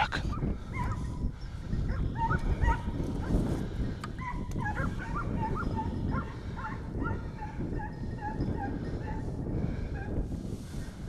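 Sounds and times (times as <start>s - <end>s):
dog yelping barks: 0.3s - 1.1s, 1.9s - 2.9s, 4.2s - 7.2s.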